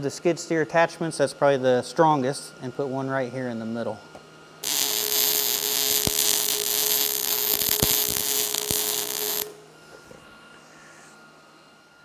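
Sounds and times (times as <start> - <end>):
welder hissing and popping: 4.6 - 9.6.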